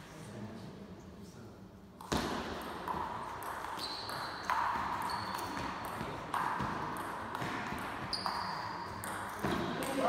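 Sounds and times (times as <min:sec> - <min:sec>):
table tennis ball pinging: 0:02.0 - 0:10.0.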